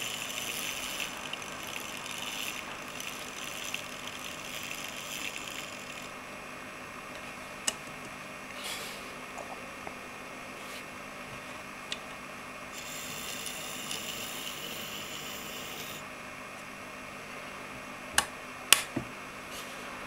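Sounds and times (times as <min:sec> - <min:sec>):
tiny electric motor whine: 0:00.0 - 0:06.2, 0:12.7 - 0:16.0.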